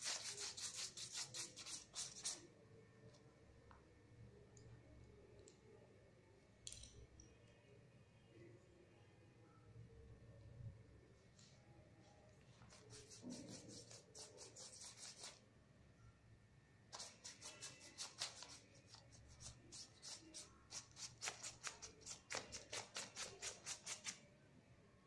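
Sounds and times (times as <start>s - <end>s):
paintbrush scratching on paper: 0.0s - 2.5s, 12.4s - 15.4s, 16.9s - 24.2s.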